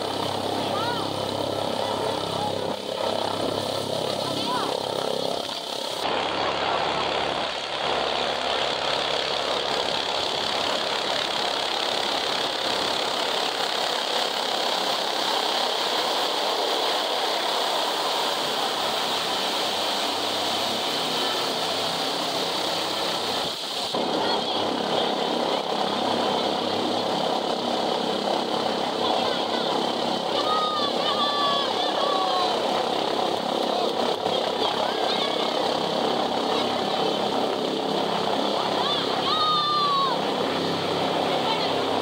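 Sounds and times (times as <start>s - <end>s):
helicopter rotor and turbine: 0.0s - 42.0s.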